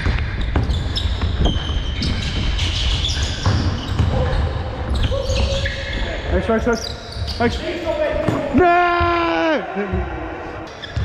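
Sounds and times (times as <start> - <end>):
basketball bouncing: 0.0 - 5.2.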